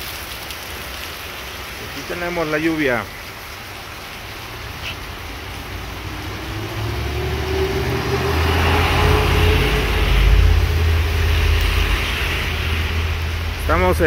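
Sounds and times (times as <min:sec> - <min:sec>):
steady rain on wet street: 0:00.0 - 0:14.0
van engine and tyre hiss: 0:04.4 - 0:14.0.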